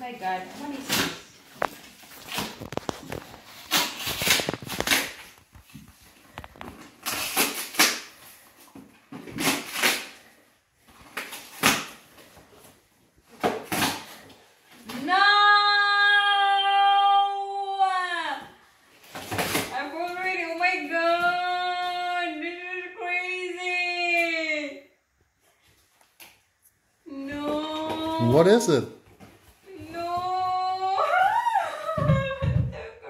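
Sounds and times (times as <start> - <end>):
cardboard and tape ripping: 0.3 - 14.9, 19.0 - 20.2
woman squealing: 29.8 - 33.0.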